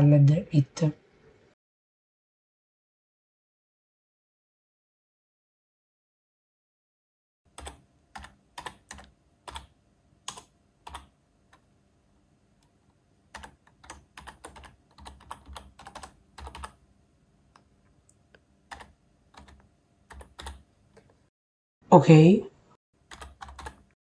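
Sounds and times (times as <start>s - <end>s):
computer keyboard typing: 7.5s - 11.7s, 13.3s - 16.8s, 18.7s - 21.2s, 23.0s - 24.0s.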